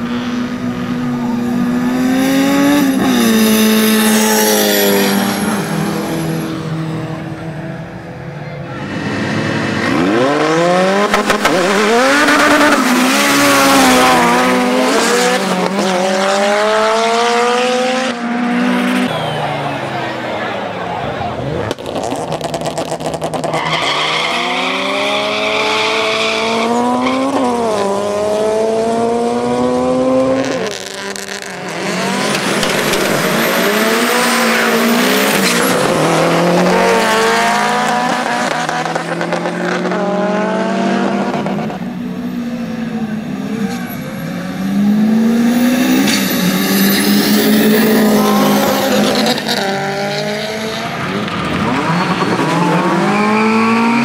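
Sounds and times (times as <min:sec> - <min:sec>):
car engines revving hard: 0:00.0 - 0:54.0.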